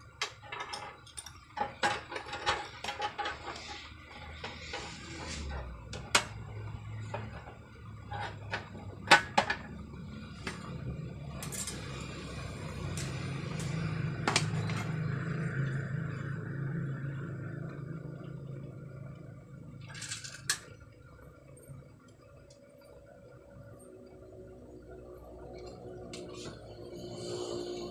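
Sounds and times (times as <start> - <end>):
tools clicking and knocking metal: 0.0 - 6.4, 11.3 - 14.9
low hum: 0.0 - 27.9.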